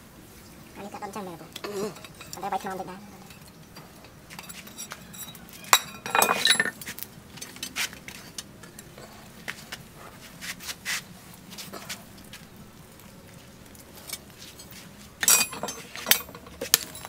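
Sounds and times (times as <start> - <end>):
metal tongs clinking and clanking: 1.6 - 9.0, 13.8 - 17.0.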